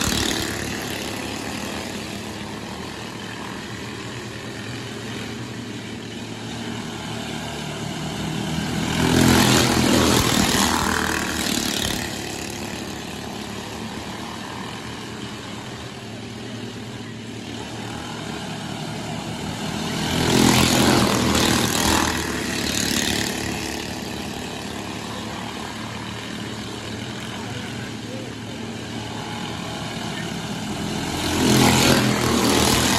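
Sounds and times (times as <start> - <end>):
kart passing by loudly: 0.0 - 32.9
racing kart engines: 0.0 - 32.9.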